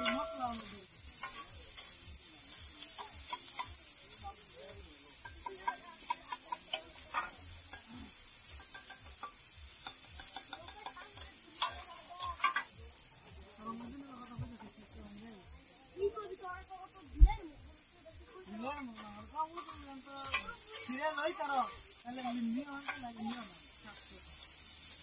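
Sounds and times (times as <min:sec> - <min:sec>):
metal spatulas scraping: 0:00.0 - 0:02.0, 0:05.2 - 0:12.7, 0:19.0 - 0:24.8
oil sizzling on griddle: 0:00.0 - 0:25.0.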